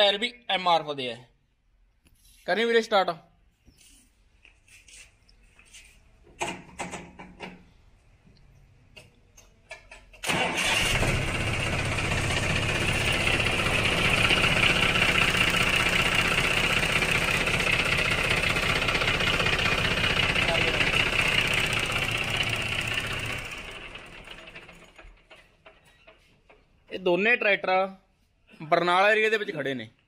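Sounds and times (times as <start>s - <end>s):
tractor diesel engine idling: 10.2s - 26.2s.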